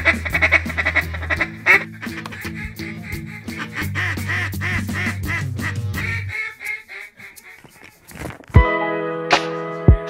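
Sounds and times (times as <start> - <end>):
background music low notes: 0.0 - 6.4, 8.4 - 10.0
duck call quacks: 0.0 - 8.1.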